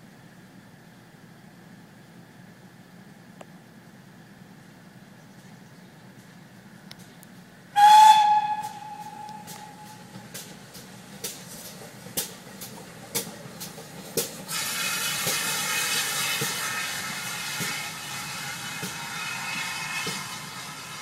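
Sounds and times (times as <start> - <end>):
steam locomotive exhaust chuffs: 7.4 - 21.0
loud steady hiss of steam: 7.7 - 21.0.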